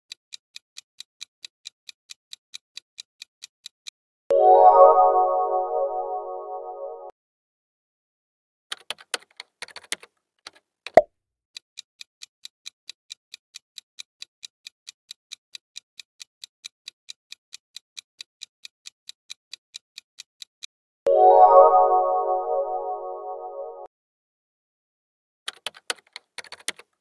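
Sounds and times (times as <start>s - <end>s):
clock ticking: 0.1s - 3.8s, 11.8s - 20.7s
scattered clicks: 25.5s - 27.0s.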